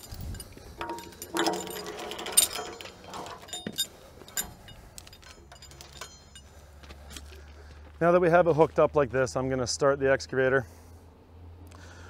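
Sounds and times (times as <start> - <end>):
steel chain clinking and rattling: 0.0 - 6.8.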